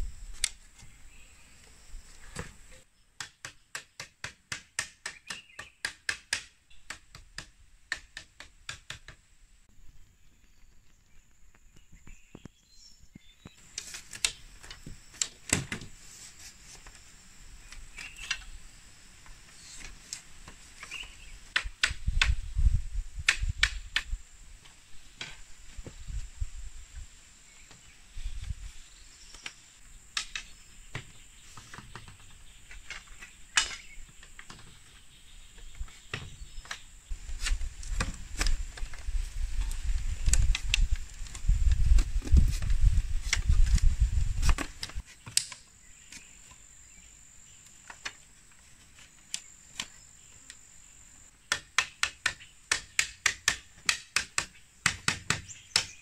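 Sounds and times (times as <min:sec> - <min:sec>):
bamboo strips clicking: 0:13.6 - 0:15.7, 0:29.4 - 0:30.5, 0:37.4 - 0:42.7, 0:43.3 - 0:45.7, 0:51.5 - 0:55.9.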